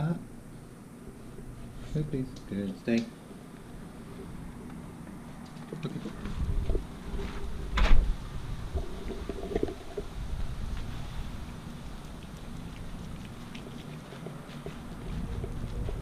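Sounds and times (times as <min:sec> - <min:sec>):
wind rumble on microphone: 0:06.0 - 0:13.9, 0:14.6 - 0:16.0
front door shutting: 0:07.7 - 0:08.1
footsteps: 0:13.5 - 0:16.0.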